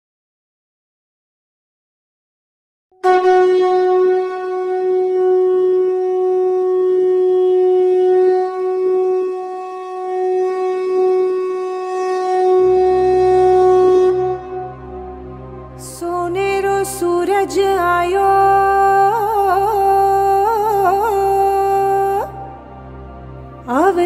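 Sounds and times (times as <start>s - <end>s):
conch shell blown: 3.0s - 15.9s
low steady drone: 3.1s - 24.0s.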